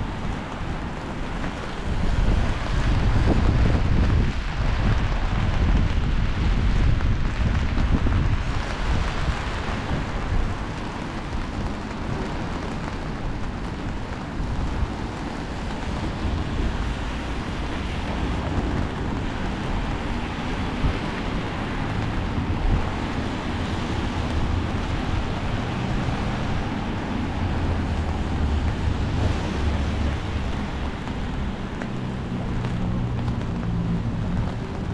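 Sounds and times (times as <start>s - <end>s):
traffic on wet streets: 0.0s - 34.9s
wind buffeting microphone: 0.0s - 34.9s.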